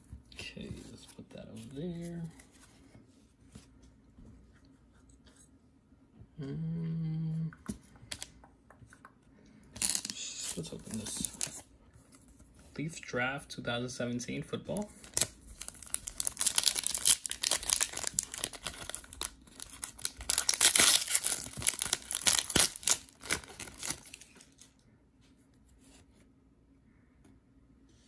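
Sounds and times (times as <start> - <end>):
foil wrapper tearing and crinkling: 9.8 - 11.6, 15.0 - 24.7.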